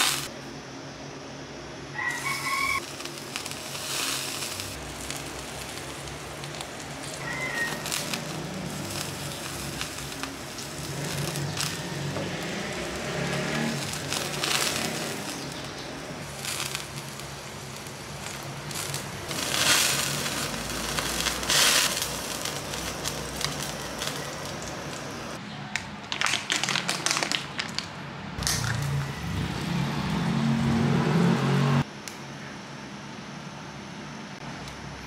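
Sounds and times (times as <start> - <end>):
meat sizzling and crackling: 0.0 - 0.3, 2.0 - 25.4
gas burner hissing: 0.0 - 0.4, 1.9 - 25.4.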